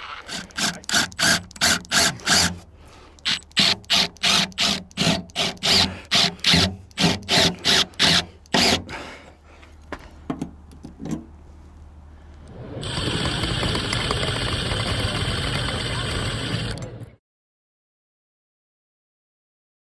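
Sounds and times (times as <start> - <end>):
power drill motor whining: 0.0 - 9.0, 12.8 - 17.0.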